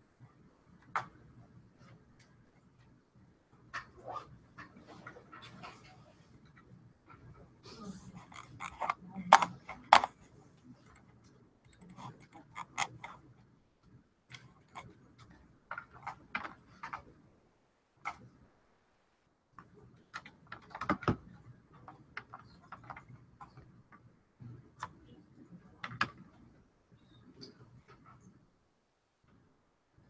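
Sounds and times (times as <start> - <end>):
keyboard and mouse clicks: 8.2 - 13.3, 14.3 - 17.2, 18.0 - 18.3, 19.6 - 25.1, 25.8 - 26.4.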